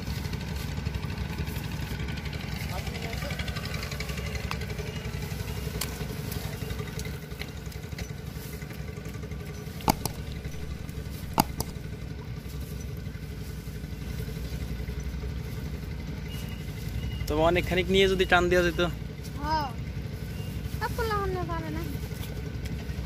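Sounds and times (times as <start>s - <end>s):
low engine rumble: 0.0s - 23.0s
sharp clicks: 9.8s - 12.2s.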